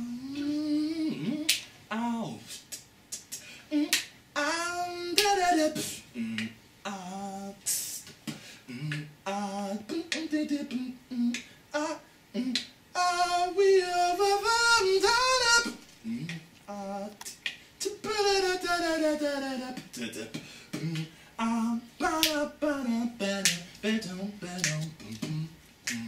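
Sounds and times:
man singing wordless melody: 0.0 - 26.0
sharp percussive clicks: 24.6 - 26.0.

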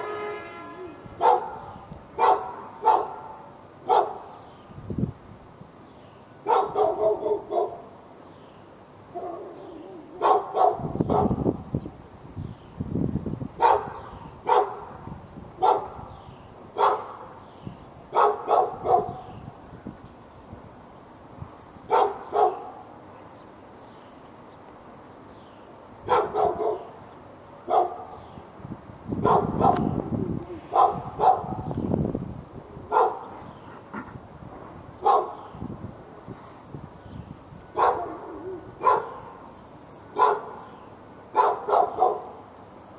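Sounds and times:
dog barking: 1.2 - 4.4, 6.4 - 7.9, 9.1 - 11.4, 13.6 - 14.9, 15.6 - 16.1, 16.8 - 17.4, 18.1 - 19.3, 21.9 - 22.9, 26.0 - 27.0, 27.7 - 28.2, 29.2 - 30.0, 30.7 - 31.7, 32.9 - 33.3, 35.0 - 35.4, 37.8 - 39.4, 40.1 - 40.7, 41.3 - 42.4.

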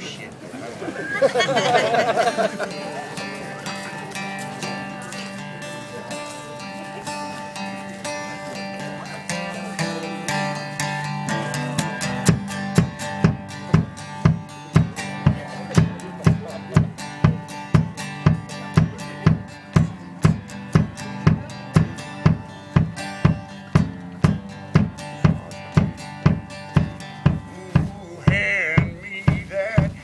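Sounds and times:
plucked acoustic strings: 1.3 - 30.0
kick drum beating: 12.3 - 30.0.

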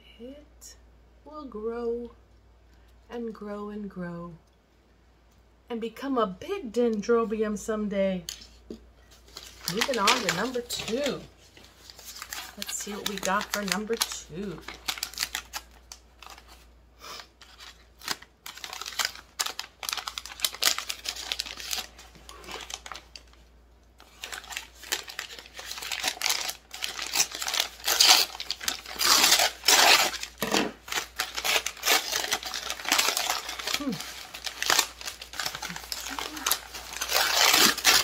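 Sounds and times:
paper crinkling and tearing: 9.1 - 23.4, 24.0 - 38.0.

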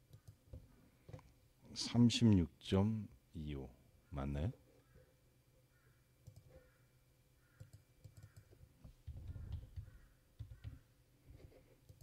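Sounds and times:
faint keyboard typing: 0.0 - 1.4, 6.2 - 6.7, 7.5 - 12.0
mouse clicks: 0.1 - 0.4, 6.2 - 6.6, 7.5 - 10.8.

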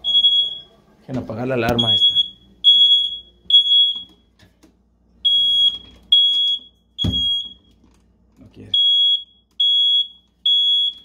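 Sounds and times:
alarm high-pitched beeps: 1.7 - 4.1.

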